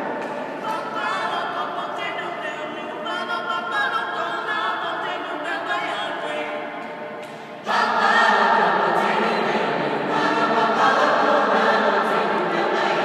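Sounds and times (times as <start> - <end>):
choir singing a cappella: 7.2 - 13.0.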